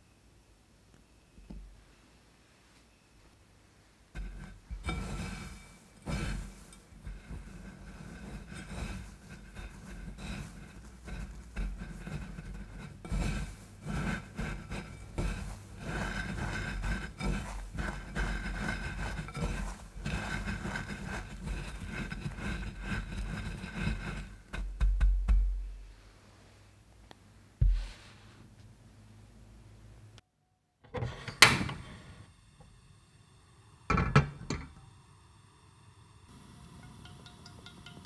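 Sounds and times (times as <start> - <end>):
bread crumbs rustling and crunching: 4.2 - 25.4
low thumps: 27.6 - 28.0.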